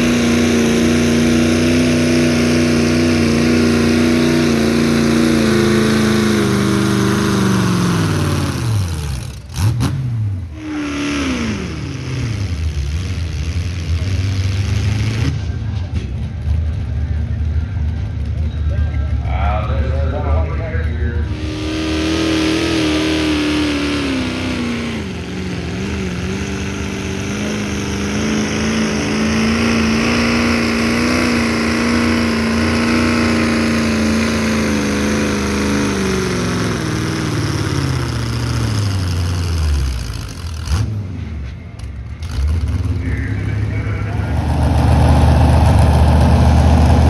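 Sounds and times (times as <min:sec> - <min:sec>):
tractor engine at full throttle: 0:00.0 - 0:47.0.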